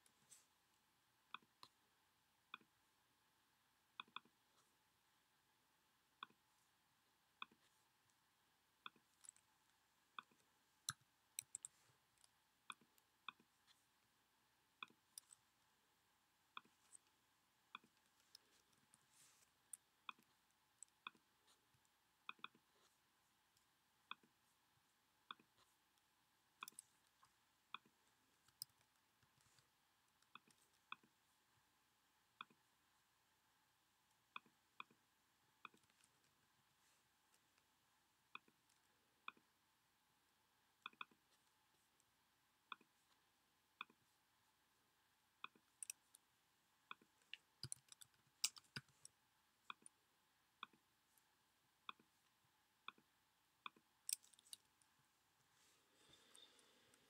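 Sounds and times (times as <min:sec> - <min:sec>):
mouse and keyboard clicks: 0:46.9 - 0:49.1.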